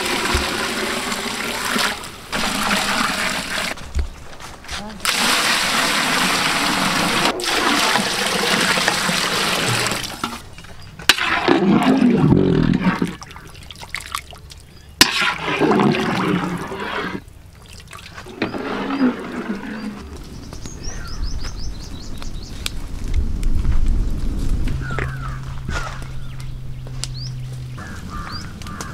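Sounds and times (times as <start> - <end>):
bird chirping: 18.9 - 22.6, 24.8 - 28.9.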